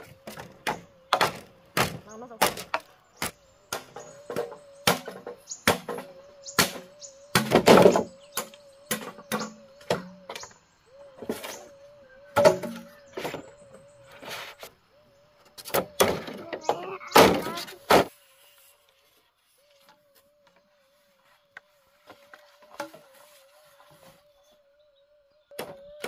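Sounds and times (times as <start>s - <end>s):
machete chopping bamboo: 0.3s - 9.1s.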